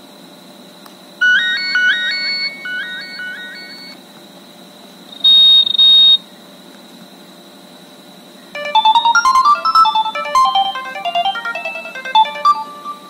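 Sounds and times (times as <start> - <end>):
electronic phone ring: 1.2 - 4.0, 8.6 - 13.0
electronic midi melody: 8.6 - 13.0.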